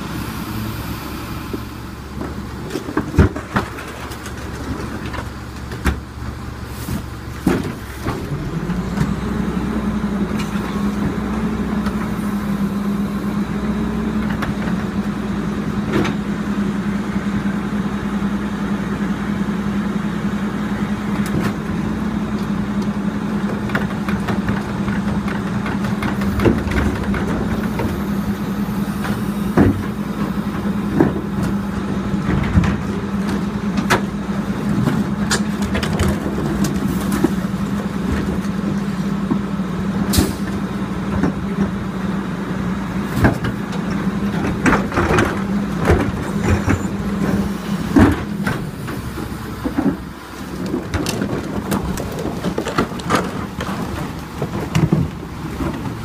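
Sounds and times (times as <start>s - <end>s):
garbage truck humming: 0.0s - 56.0s
plastic carts knocking and banging: 23.4s - 28.1s, 43.2s - 56.0s.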